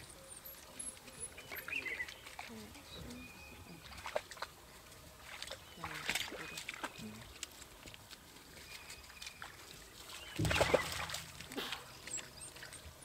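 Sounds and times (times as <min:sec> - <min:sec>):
faint high bird chirps: 0:00.0 - 0:04.0
dogs splashing in water: 0:00.4 - 0:13.0.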